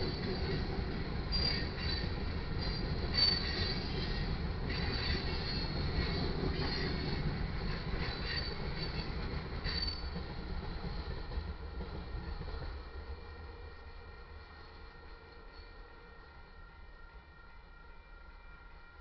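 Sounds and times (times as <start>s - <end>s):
train wheels rumbling on rail: 0.0s - 16.6s
high-pitched wheel squeal: 1.3s - 3.6s.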